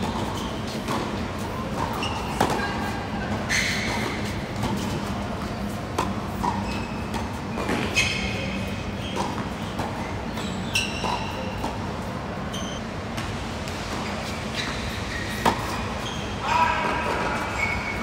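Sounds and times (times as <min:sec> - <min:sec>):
racket hitting tennis ball: 0:00.0 - 0:08.0, 0:10.8 - 0:11.8, 0:15.3 - 0:15.8
tennis ball bouncing: 0:00.0 - 0:08.0, 0:10.7 - 0:11.8, 0:15.3 - 0:15.8.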